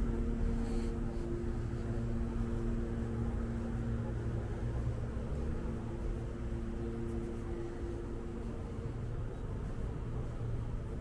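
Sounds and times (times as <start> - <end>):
droning machine hum: 0.0 - 11.0
low traffic rumble: 0.0 - 11.0.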